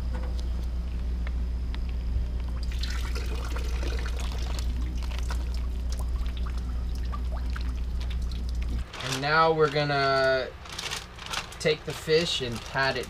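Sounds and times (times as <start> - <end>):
steady low hum: 0.0 - 13.0
liquid pouring from a bag: 2.7 - 13.0.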